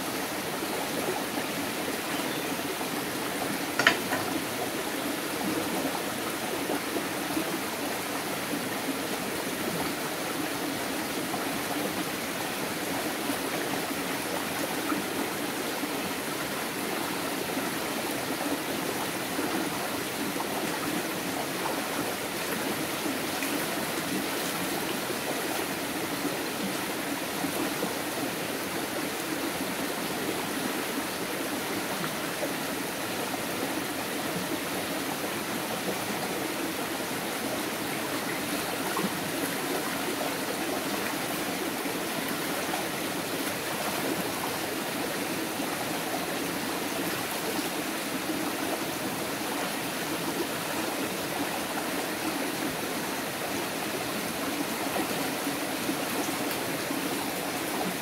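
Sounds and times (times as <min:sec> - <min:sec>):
stream running over stones: 0:00.0 - 0:58.0.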